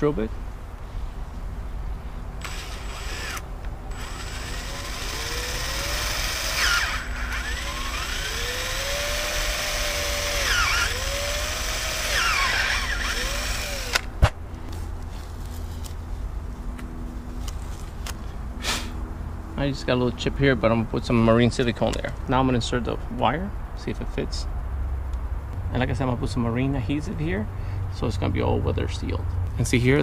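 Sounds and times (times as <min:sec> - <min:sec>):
cordless drill whine: 0:02.4 - 0:14.1.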